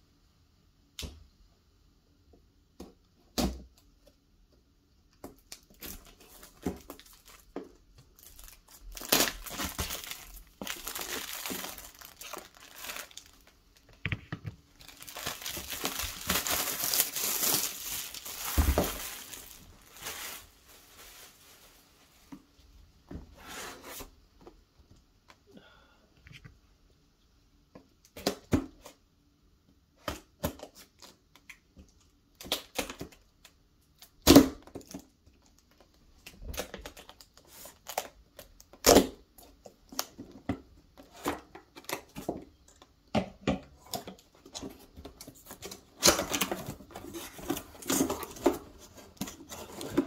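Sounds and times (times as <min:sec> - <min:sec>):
cardboard scraping and rustling: 0:14.8 - 0:21.8, 0:23.3 - 0:24.1, 0:44.6 - 0:50.0
cardboard box being opened: 0:15.0 - 0:20.4.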